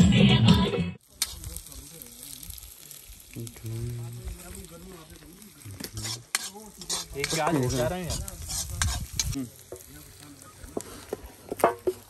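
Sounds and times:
food sizzling in a pan: 0:01.0 - 0:12.0.

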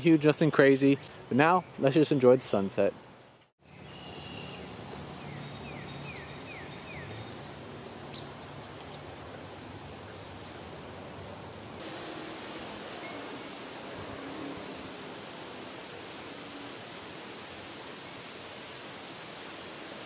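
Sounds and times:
soft outdoor hiss: 0:00.0 - 0:20.0
bird chirping: 0:03.7 - 0:09.0.

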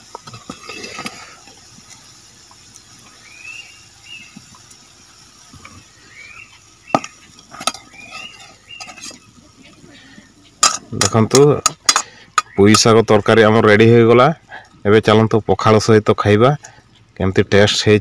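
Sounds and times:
high squeaky chirps: 0:05.8 - 0:10.6, 0:12.4 - 0:13.0
metal pan clanking on concrete: 0:10.6 - 0:12.9.

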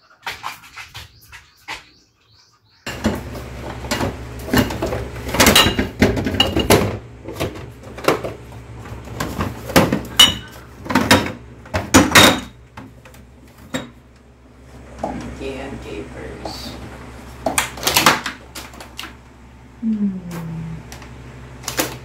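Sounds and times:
steady low hum: 0:02.8 - 0:22.0
glass bottles clinking: 0:03.9 - 0:07.0, 0:09.8 - 0:12.6.

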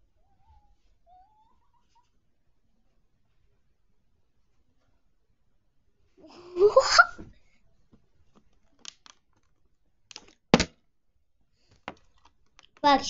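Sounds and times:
boy laughing: 0:06.3 - 0:07.2
plastic bottle knocking over: 0:10.6 - 0:10.8.

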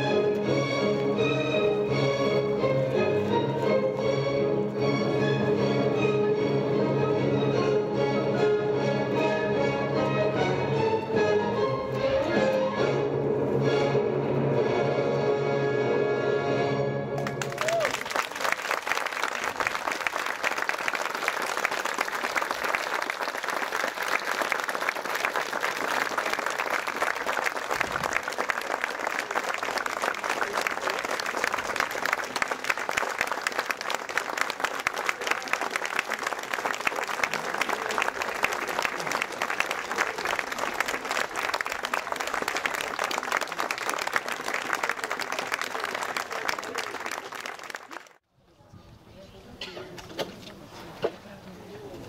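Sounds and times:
audience applauding: 0:17.2 - 0:48.2.

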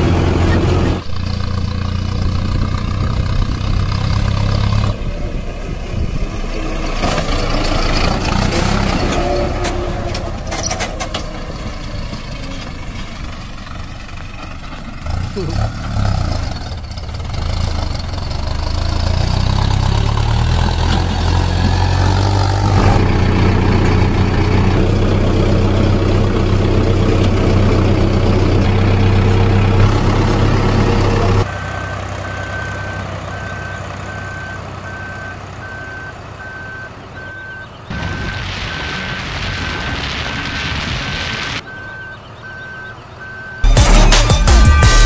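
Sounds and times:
heavy diesel engine running: 0:00.0 - 0:45.0
reversing alarm beeps: 0:32.2 - 0:39.0, 0:41.6 - 0:44.8.

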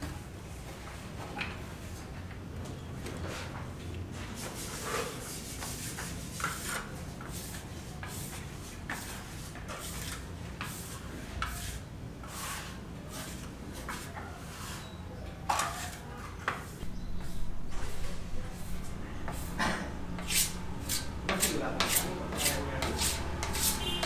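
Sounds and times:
trowel scraping cement render: 0:04.7 - 0:15.0, 0:15.7 - 0:24.0.

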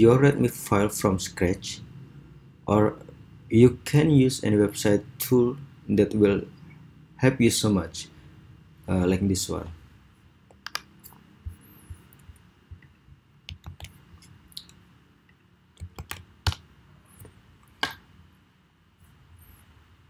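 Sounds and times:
keyboard keystrokes: 0:10.5 - 0:11.6, 0:13.5 - 0:14.0, 0:15.8 - 0:16.6
mouse clicks: 0:10.5 - 0:12.9.

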